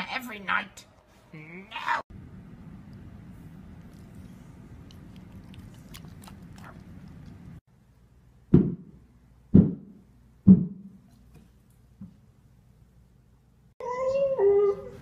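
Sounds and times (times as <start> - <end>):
dog chewing a treat: 3.8 - 7.5.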